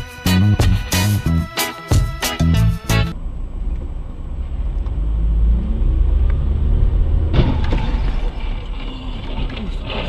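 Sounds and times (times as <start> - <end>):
car rumble on road: 3.2 - 10.0.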